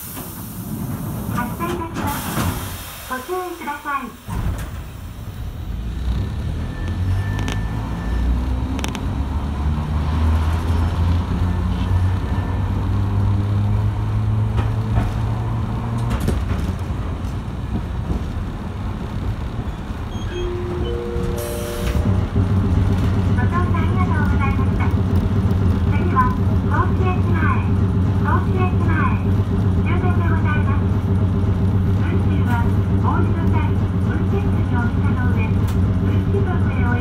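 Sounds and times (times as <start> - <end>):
rail clicks: 0.0 - 2.7, 14.4 - 30.6
traction motors humming: 17.1 - 28.6
short tones: 20.1 - 22.4.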